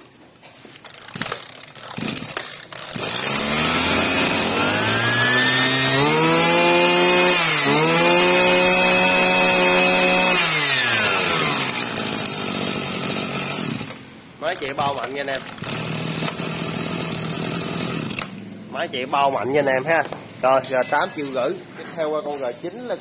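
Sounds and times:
brush cutter engine revving: 0.8s - 18.5s.

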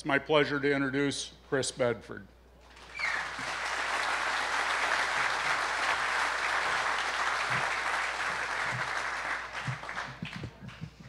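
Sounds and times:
audience applauding: 2.7s - 11.0s.

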